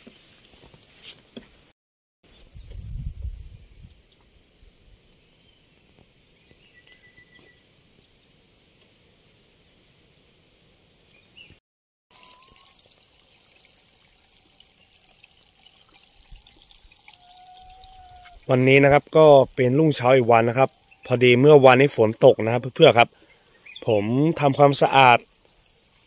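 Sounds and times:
high-pitched insect drone: 12.2s - 12.8s, 15.9s - 24.3s.

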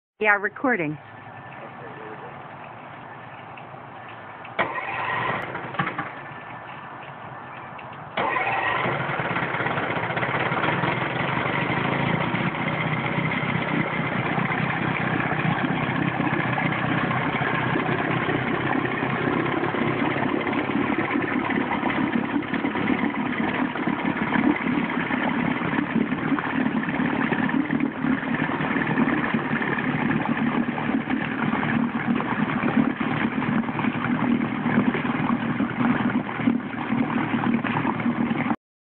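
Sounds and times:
churning water: 0.2s - 38.6s
outboard motor running: 0.3s - 38.6s.

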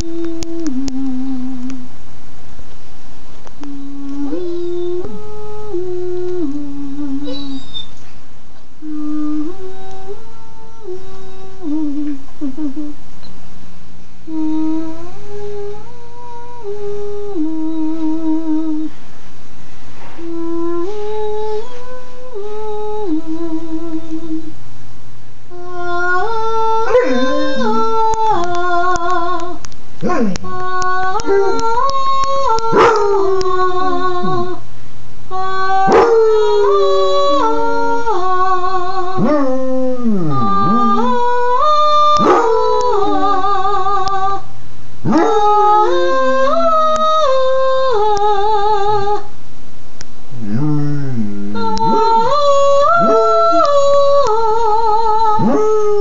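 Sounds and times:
dog howling and yipping: 7.2s - 8.0s, 26.8s - 28.4s, 31.2s - 33.5s, 35.9s - 37.6s, 42.1s - 43.6s, 45.1s - 46.9s, 51.6s - 53.9s.

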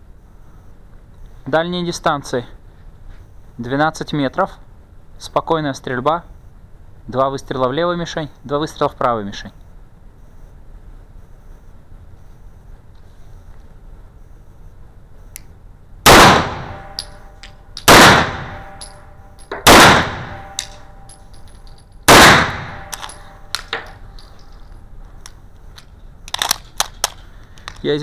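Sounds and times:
pistol shots echoing indoors: 16.1s - 17.2s, 17.8s - 21.2s, 22.1s - 23.4s
small metallic clinks: 16.8s - 17.9s, 18.6s - 19.7s, 20.3s - 22.1s, 22.7s - 27.8s.

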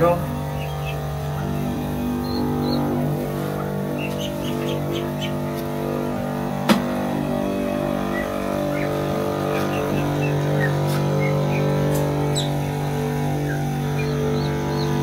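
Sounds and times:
birds chirping: 0.0s - 15.0s
small engine droning: 0.0s - 15.0s.

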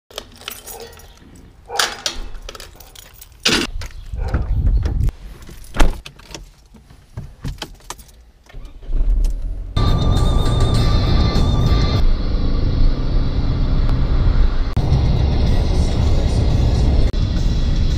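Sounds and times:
car keys jangling: 0.1s - 3.7s, 5.4s - 8.4s
music: 9.8s - 12.0s, 14.8s - 17.9s.

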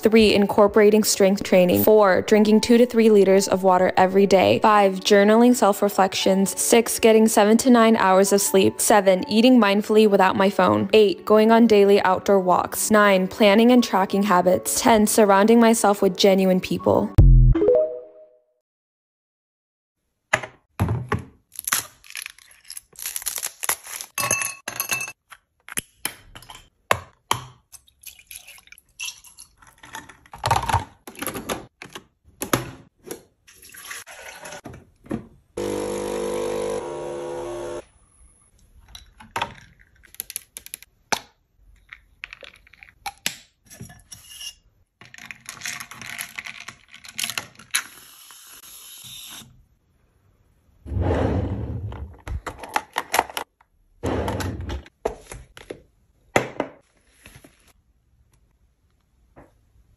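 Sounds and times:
coffee machine pump buzzing: 35.6s - 37.8s.

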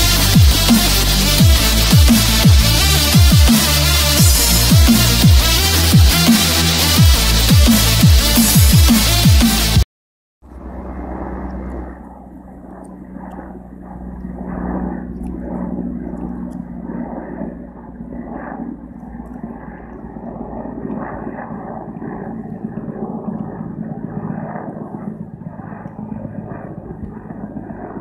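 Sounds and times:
helicopter flying overhead: 0.0s - 9.4s, 10.4s - 28.0s.

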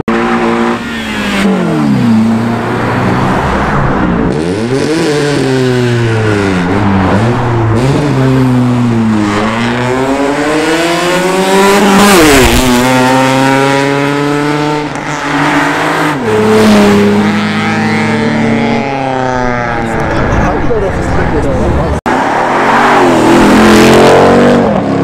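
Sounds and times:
car engine accelerating hard: 0.1s - 25.0s.

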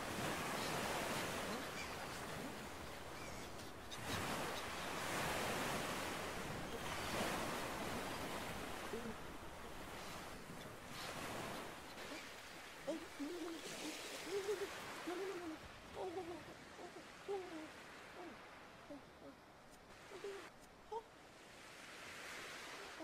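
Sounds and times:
surf washing on beach: 0.0s - 19.1s, 21.1s - 23.0s.

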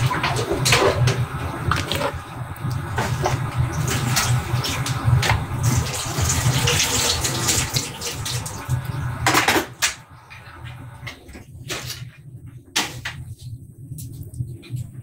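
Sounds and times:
tap water running into sink: 1.6s - 9.4s.

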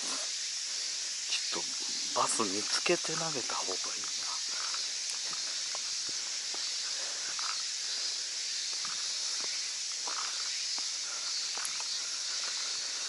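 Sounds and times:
high-pitched insect chorus: 0.0s - 13.0s
faint footsteps: 1.7s - 13.0s
small clicks: 11.6s - 11.9s.

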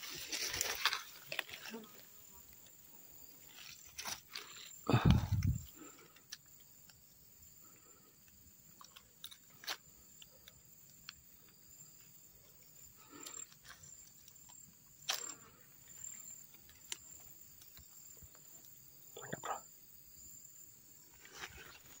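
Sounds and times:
leaves and twigs rustling: 0.0s - 7.2s, 21.0s - 22.0s.

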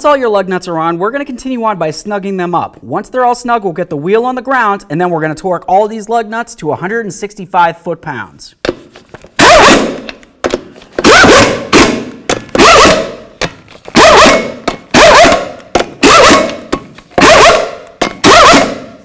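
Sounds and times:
impact gun bursts: 9.4s - 19.0s.

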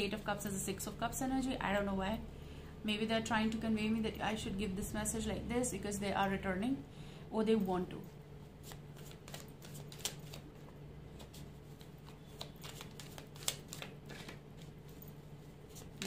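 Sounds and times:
cards being shuffled: 8.6s - 15.0s, 15.7s - 16.0s.

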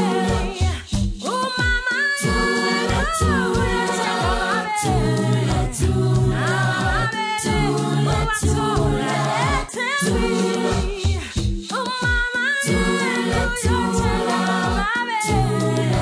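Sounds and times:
a cappella choir singing: 0.0s - 16.0s.

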